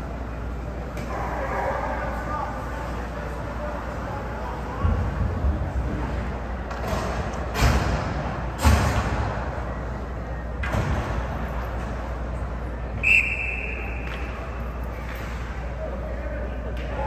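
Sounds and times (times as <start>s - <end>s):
slams against rink boards: 6.7s - 9.4s
referee's whistle: 13.0s - 14.2s.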